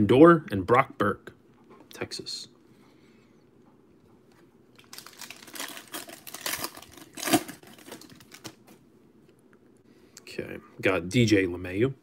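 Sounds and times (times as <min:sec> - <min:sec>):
wrapper tearing and crinkling: 0:04.8 - 0:08.6.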